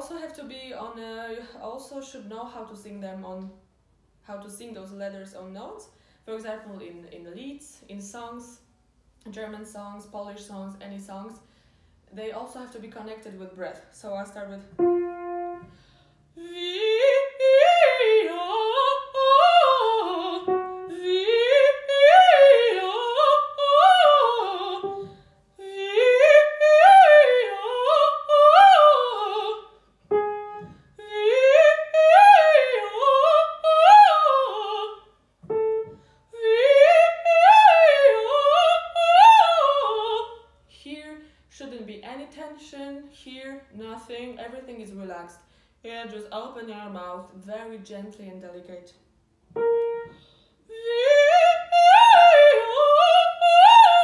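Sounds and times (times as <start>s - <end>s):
singer breathing: 5.9s - 6.3s, 11.4s - 12.0s, 15.6s - 16.4s, 35.9s - 36.3s, 45.5s - 45.8s, 50.1s - 50.7s
woman singing operatic scales: 14.2s - 41.1s, 49.6s - 54.0s
piano note: 14.7s - 16.1s, 20.0s - 21.7s, 30.1s - 31.0s, 35.4s - 36.2s, 49.5s - 50.4s.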